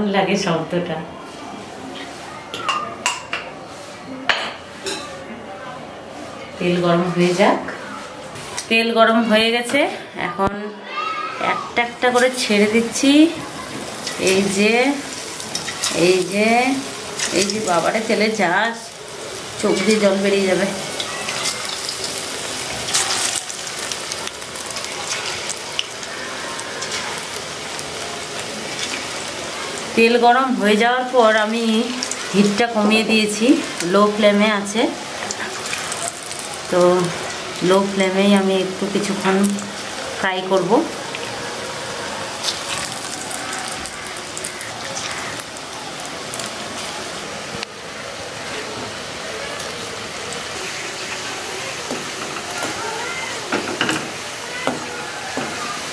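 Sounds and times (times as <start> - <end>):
sharp crackles of frying: 7.1 - 8.8, 10.4 - 55.9
potato sticks sizzling in hot oil: 10.9 - 55.9.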